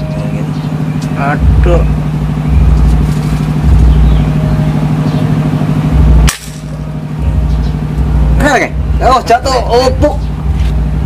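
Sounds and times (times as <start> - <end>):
low hum and rumble: 0.0 - 11.0
air rifle shot: 6.2 - 6.7.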